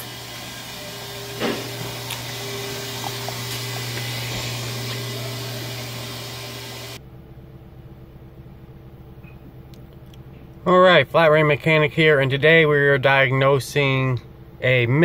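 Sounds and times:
car engine running with misfire: 0.0 - 7.0
faint hum: 0.0 - 15.0.

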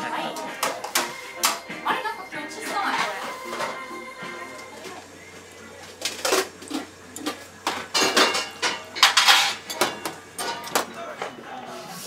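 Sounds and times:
kitchenware clinking: 0.3 - 1.7, 2.6 - 5.0, 5.8 - 11.4.

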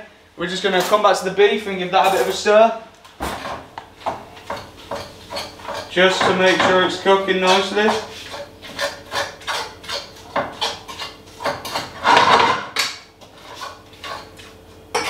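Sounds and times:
spoon scraping a pan: 7.3 - 12.3, 13.2 - 15.0.

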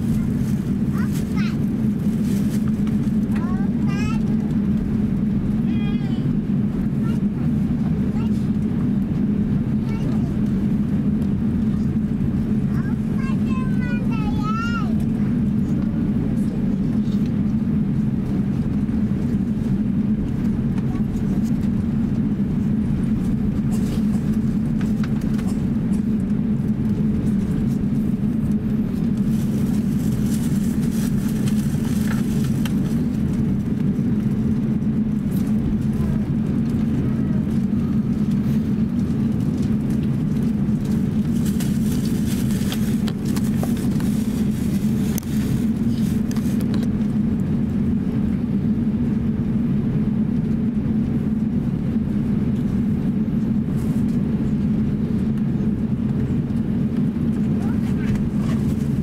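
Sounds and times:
aircraft cabin engine hum: 0.0 - 59.0
cabin air system: 0.0 - 59.0.

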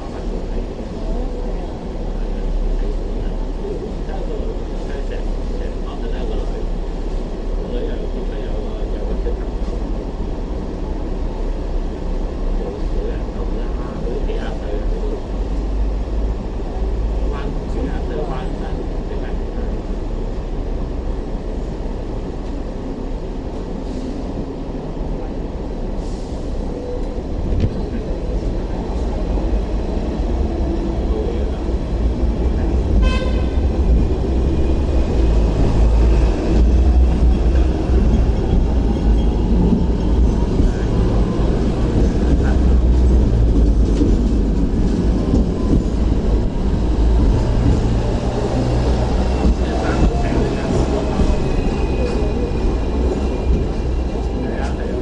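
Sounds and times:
tram wheels and motor rumbling: 0.0 - 55.0
tram horn toot: 32.9 - 34.0.

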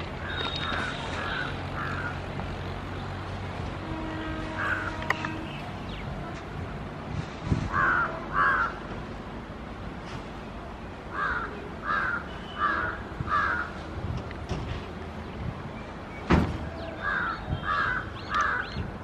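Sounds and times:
crow cawing: 0.2 - 2.2, 7.7 - 8.8, 11.1 - 13.7, 17.0 - 18.7.

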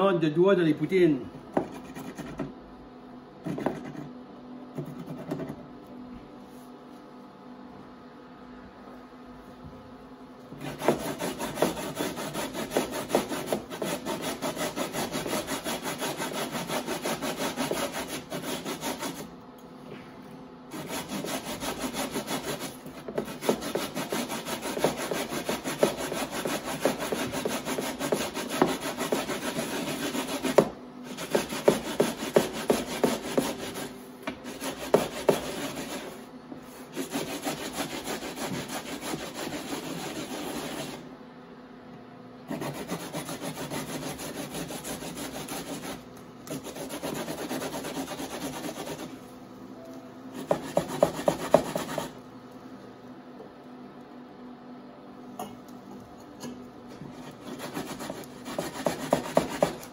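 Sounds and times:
potatoes grated on a grater: 10.6 - 19.2, 20.7 - 33.9, 34.5 - 36.2, 36.9 - 41.0, 42.5 - 49.1, 57.3 - 59.8.

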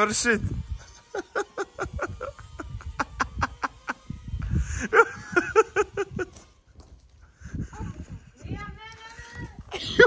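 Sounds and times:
person laughing in short bursts: 1.0 - 6.5.

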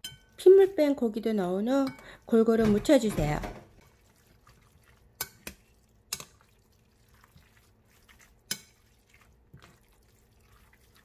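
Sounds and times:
spoon clinking against glass: 0.0 - 0.4
wet stirring in a bowl: 0.0 - 11.0.

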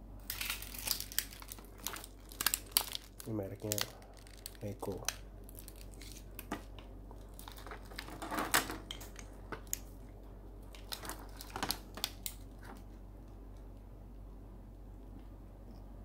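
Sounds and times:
plastic bag crinkling: 0.2 - 10.0, 10.6 - 12.9.

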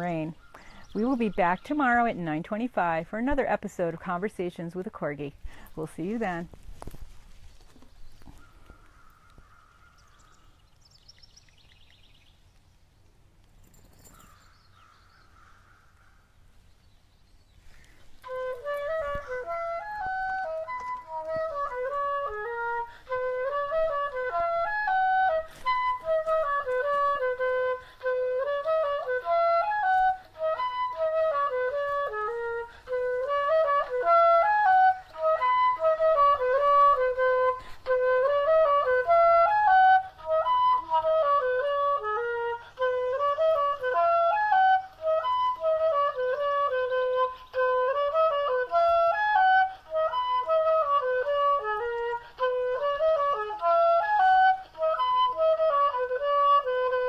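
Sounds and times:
flute melody: 18.0 - 57.0.

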